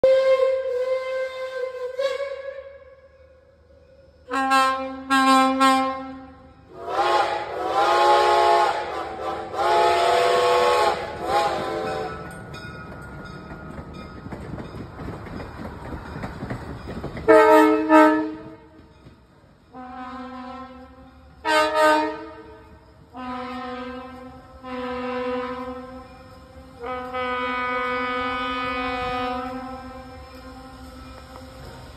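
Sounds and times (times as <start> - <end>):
diesel rail car air horn: 0.0 - 12.3, 17.3 - 18.8, 19.7 - 31.8
train wheel noise: 6.3 - 31.9
steam chime whistle: 19.7 - 31.9.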